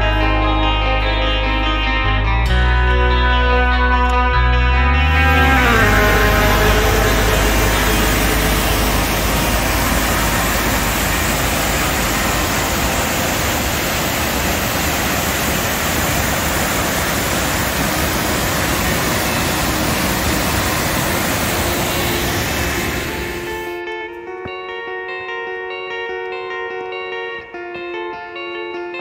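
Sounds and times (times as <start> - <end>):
whitewater rushing over boulders: 5.2 - 23.5.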